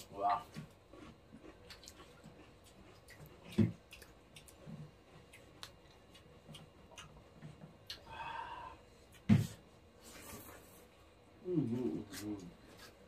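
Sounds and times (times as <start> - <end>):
fingers mixing wet food: 0.0 - 8.1.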